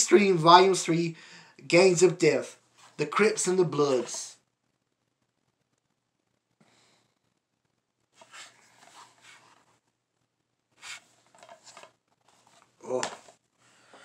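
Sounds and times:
rustling of cases and packaging: 8.2s - 9.8s, 10.8s - 14.0s.

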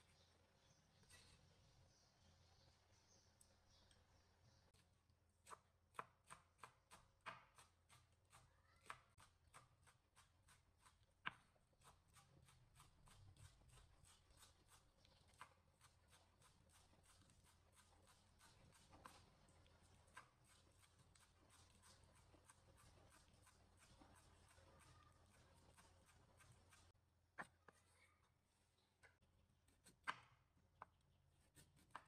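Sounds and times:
knife chopping on wooden board: 5.4s - 16.2s, 31.5s - 32.0s.

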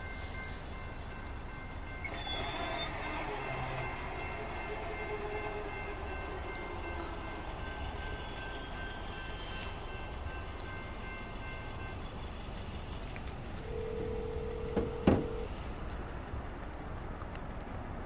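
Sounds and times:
crossing bell ringing: 0.0s - 15.6s
sharp knocks: 14.7s - 15.4s.

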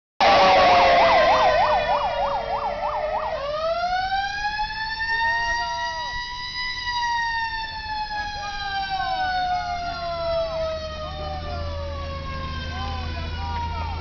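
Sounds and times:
fire truck siren: 0.2s - 14.0s.

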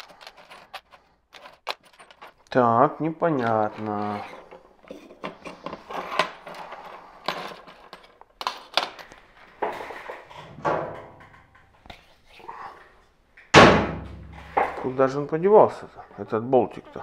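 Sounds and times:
small tools clicking and rattling: 0.0s - 2.6s, 3.3s - 10.2s.

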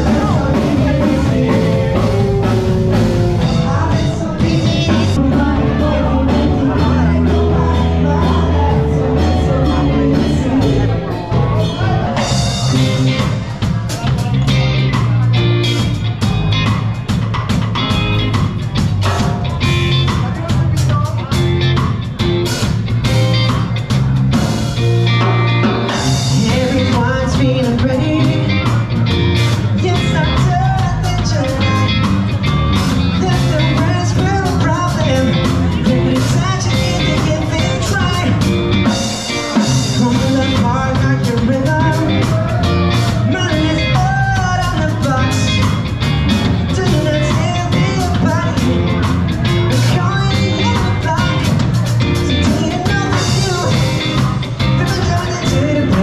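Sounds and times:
man singing into a microphone: 0.0s - 12.4s, 26.1s - 28.9s, 29.6s - 32.1s, 33.1s - 45.9s, 46.6s - 56.0s
bass guitar: 0.0s - 56.0s
drums: 0.0s - 56.0s
electric guitar: 0.0s - 56.0s.

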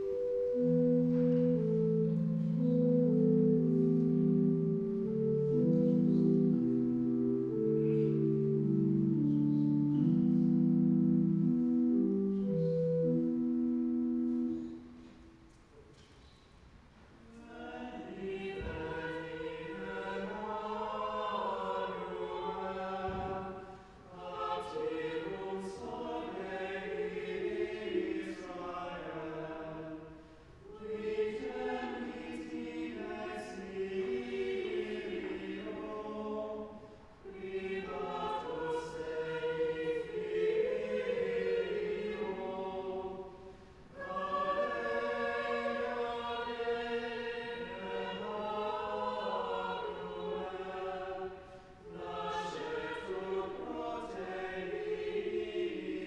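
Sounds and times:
choir singing sacred music: 0.0s - 56.0s.

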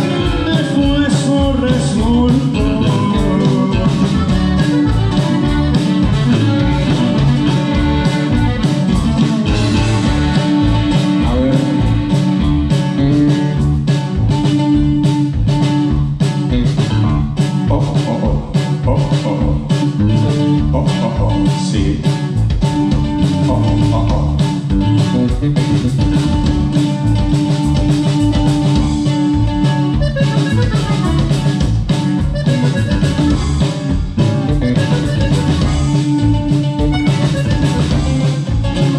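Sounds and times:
bajo sexto guitar: 0.0s - 38.9s
electric bass: 0.0s - 38.9s
steady drum beat: 0.0s - 38.9s
button accordion: 3.2s - 13.2s, 28.0s - 38.9s.

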